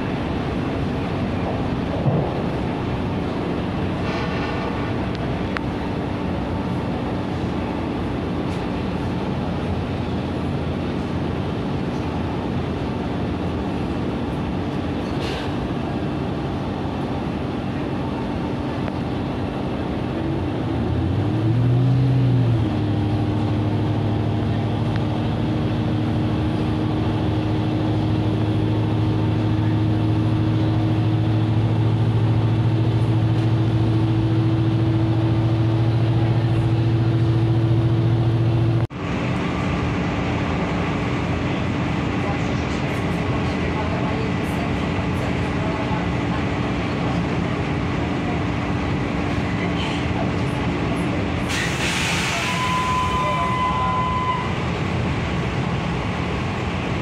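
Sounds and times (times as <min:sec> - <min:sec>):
train drive droning: 0:00.0 - 0:57.0
train ride rumble: 0:00.0 - 0:57.0.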